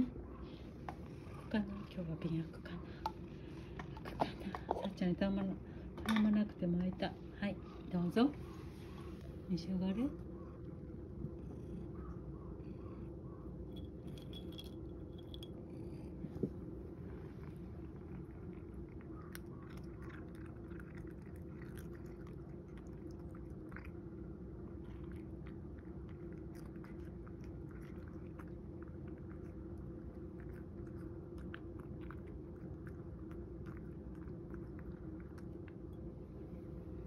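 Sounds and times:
steady low hum: 0:00.0 - 0:37.0
cat chewing crunchy food: 0:13.8 - 0:36.8.

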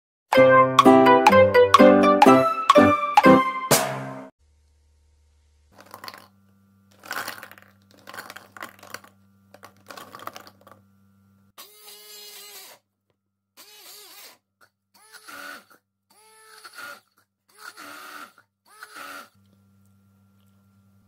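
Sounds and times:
cranberries clattering into beaker: 0:05.8 - 0:10.8
immersion blender motor: 0:11.6 - 0:12.8, 0:13.6 - 0:14.4, 0:15.0 - 0:20.6.

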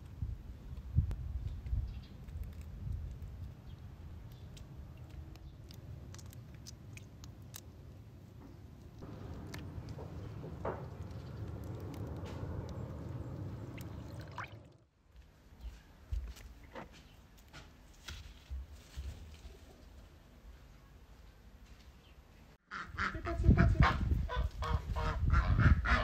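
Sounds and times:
shrimp shells snapping: 0:04.3 - 0:07.9
steady low rumble: 0:08.9 - 0:14.8.

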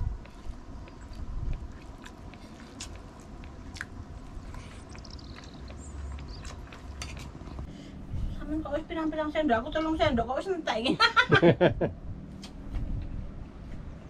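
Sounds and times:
person chewing: 0:00.1 - 0:07.7.

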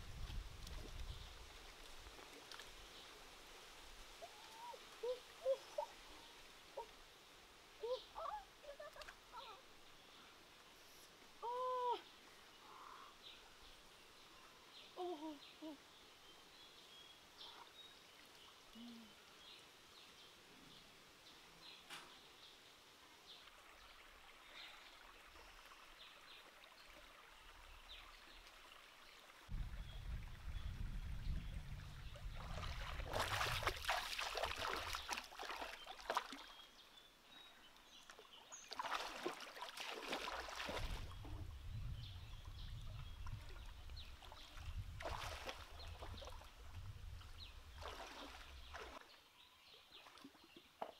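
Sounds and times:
stream water splashing: 0:00.1 - 0:11.4, 0:32.0 - 0:36.9, 0:37.6 - 0:41.3, 0:42.4 - 0:49.2, 0:49.8 - 0:50.9
faint bird calls: 0:04.2 - 0:07.0, 0:07.8 - 0:09.7, 0:11.4 - 0:13.5, 0:14.8 - 0:15.9, 0:18.7 - 0:19.4.

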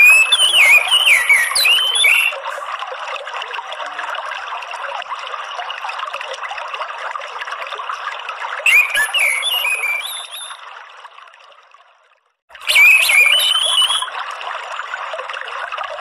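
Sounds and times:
thrush twittering song: 0:00.0 - 0:02.4, 0:08.7 - 0:10.6, 0:12.6 - 0:14.1
trickling water: 0:00.0 - 0:16.0.

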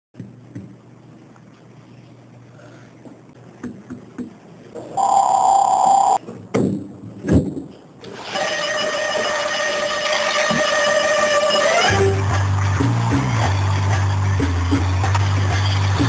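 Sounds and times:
loud electronic buzzer tone: 0:05.0 - 0:06.2.

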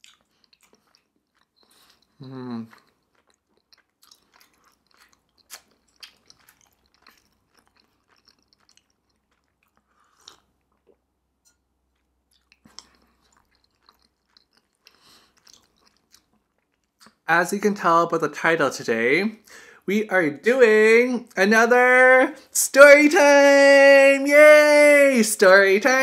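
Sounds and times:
mouth chewing rice cakes: 0:00.0 - 0:17.3.

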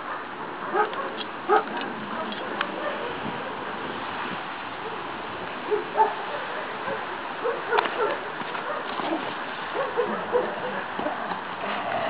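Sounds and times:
dog barking: 0:00.0 - 0:03.2, 0:05.7 - 0:11.2.

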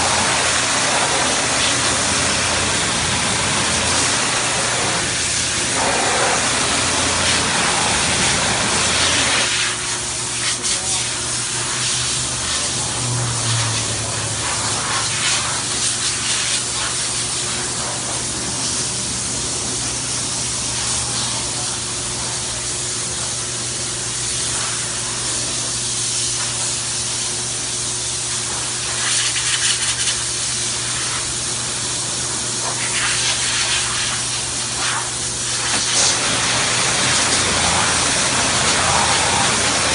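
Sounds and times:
pressure washer motor humming: 0:00.0 - 0:29.0, 0:29.7 - 0:39.9
water jet hissing on car: 0:00.0 - 0:39.9.

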